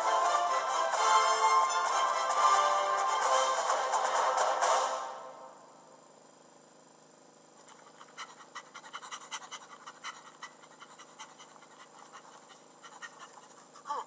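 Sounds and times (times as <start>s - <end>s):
animated character panting: 7.6s - 14.0s.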